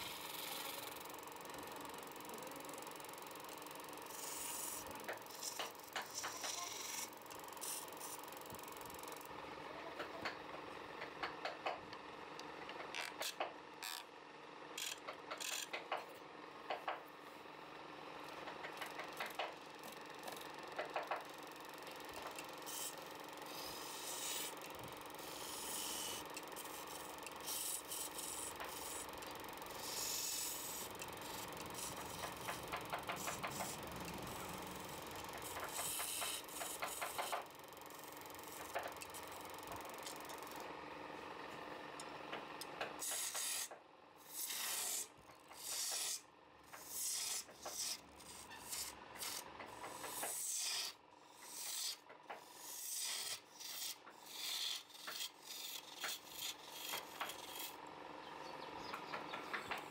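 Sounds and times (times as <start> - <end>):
tool scraping spinning wood: 0.0 - 11.6, 14.8 - 16.2, 18.3 - 40.7, 42.8 - 57.9
wood lathe humming: 19.0 - 41.7, 52.7 - 59.9.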